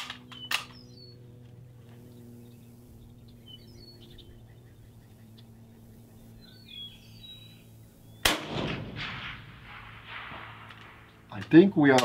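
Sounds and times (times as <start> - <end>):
steady low hum: 0.0 - 12.0
faint bird chirps: 2.0 - 8.3.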